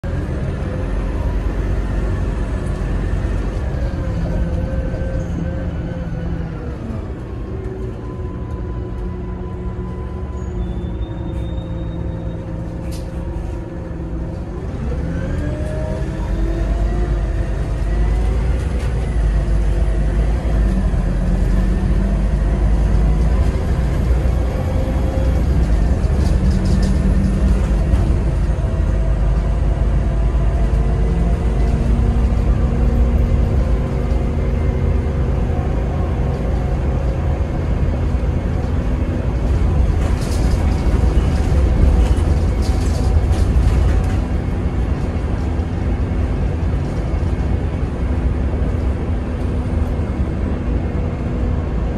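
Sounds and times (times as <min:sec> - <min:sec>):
bus diesel engine running: 0:00.0 - 0:51.9.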